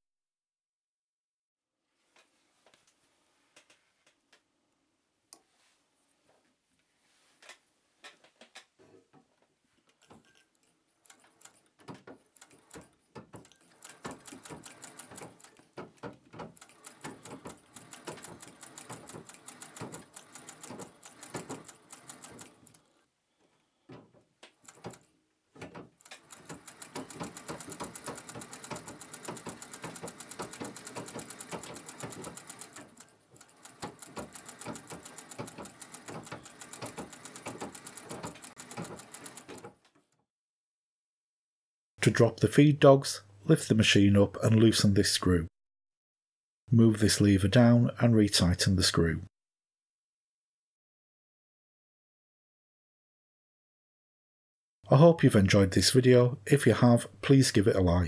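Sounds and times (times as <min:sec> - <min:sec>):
sewing machine stitching: 0:10.0 - 0:23.0, 0:24.5 - 0:39.9.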